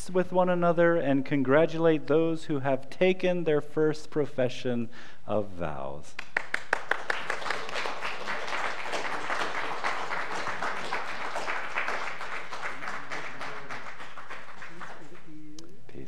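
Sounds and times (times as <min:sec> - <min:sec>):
congregation applauding: 0:06.2 - 0:15.5.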